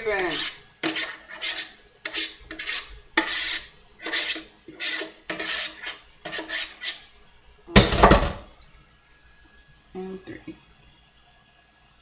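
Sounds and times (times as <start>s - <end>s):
utensil scraping a bowl: 0.0s - 7.1s.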